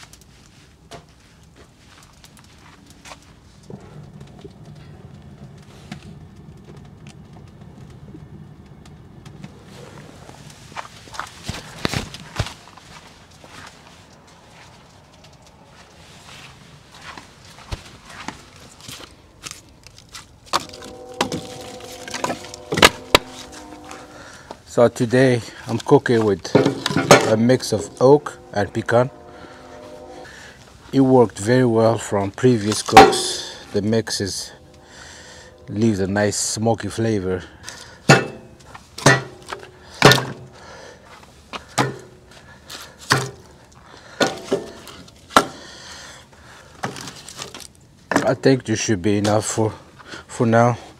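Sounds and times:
wood fire crackling: 0.0s - 50.9s
steady hum: 20.3s - 40.6s
logs knocking on metal firebox: 26.5s - 29.6s, 38.1s - 40.4s.

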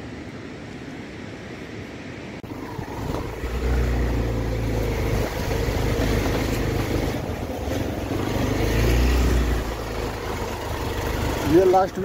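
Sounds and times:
vehicle engine rumbling: 2.4s - 12.0s.

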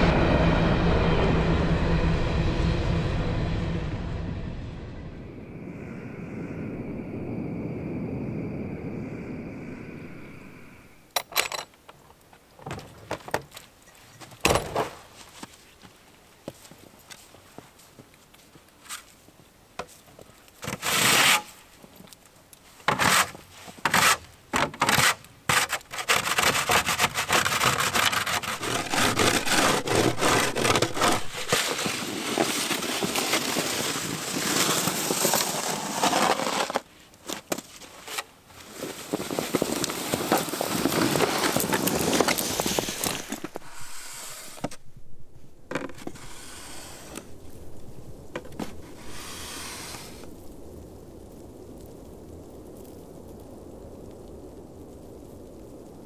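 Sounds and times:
snow shovel scraping snow: 20.6s - 21.6s, 22.9s - 44.8s, 45.8s - 47.3s, 48.5s - 50.3s.

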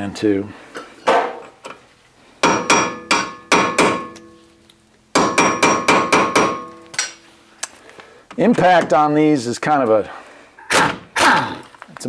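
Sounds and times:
hammer tapping metal: 2.4s - 4.4s, 5.1s - 7.2s.

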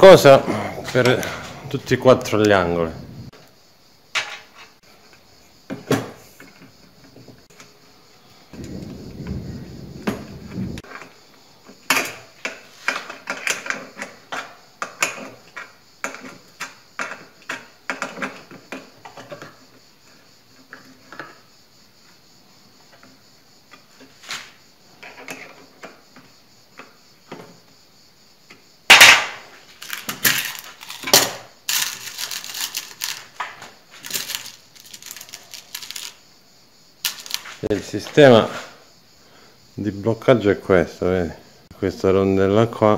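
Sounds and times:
nuts and bolts clinking on metal: 4.2s - 7.7s, 11.7s - 19.8s, 28.9s - 36.2s, 37.0s - 38.5s
low rumble: 8.6s - 10.8s
metal parts clattering: 29.8s - 36.2s, 37.0s - 37.6s.

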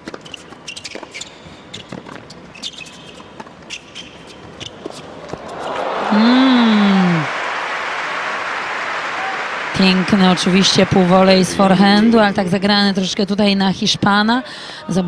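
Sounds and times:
shoe squeaks on court: 0.0s - 5.1s
crowd cheering and applauding: 4.8s - 13.1s
long drawn-out voice call: 5.9s - 7.4s.

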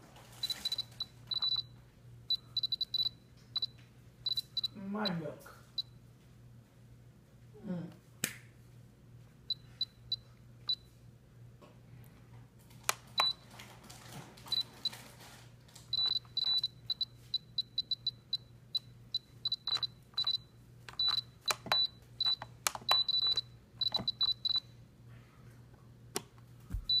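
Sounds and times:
high electronic key beeps: 0.4s - 1.7s, 2.3s - 5.2s, 15.9s - 24.6s.

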